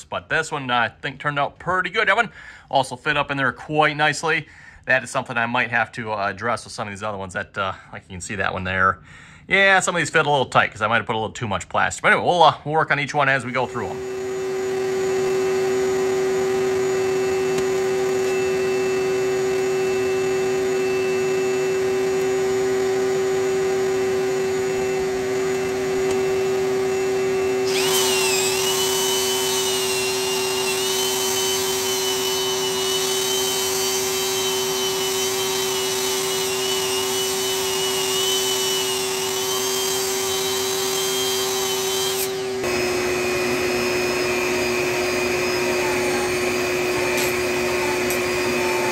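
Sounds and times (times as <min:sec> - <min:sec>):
electric motor running: 0:13.6 - 0:48.9.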